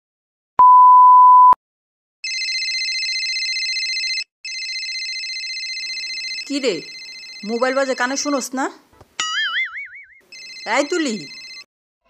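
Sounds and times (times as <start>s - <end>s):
warbling phone ringtone: 2.2s - 8.4s, 9.2s - 11.7s.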